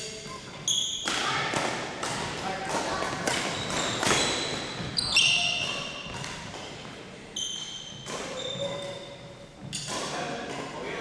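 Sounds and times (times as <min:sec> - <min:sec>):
sneakers squeaking on wooden floor: 0:00.0 - 0:01.5, 0:02.9 - 0:10.0
racket hitting shuttlecock: 0:00.9 - 0:06.9, 0:07.9 - 0:10.7.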